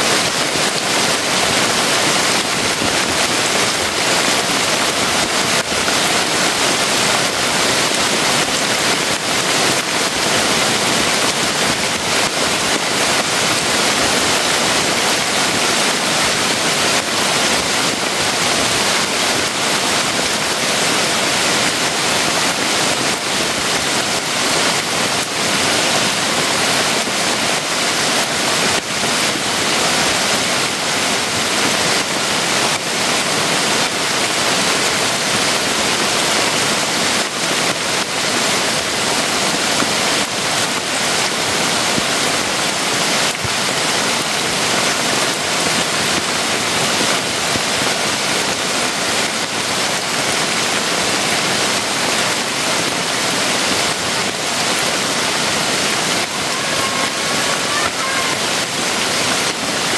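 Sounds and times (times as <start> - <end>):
heavy rain hissing: 0.0 - 59.9.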